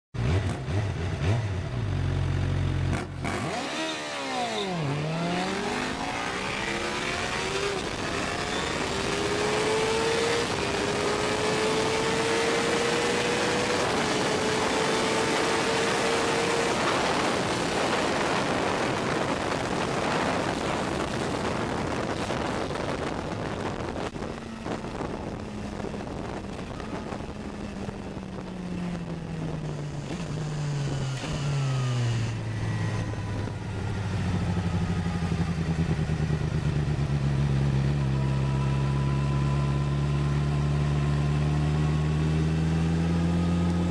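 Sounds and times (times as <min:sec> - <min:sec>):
vehicle engine accelerating: 0:00.2 - 0:43.9
wind rush: 0:04.3 - 0:37.2.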